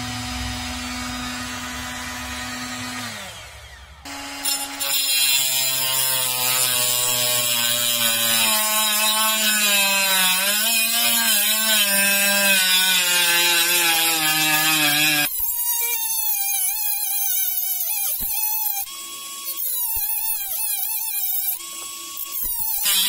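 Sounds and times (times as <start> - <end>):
angle grinder motor whine: 0.0 - 15.3.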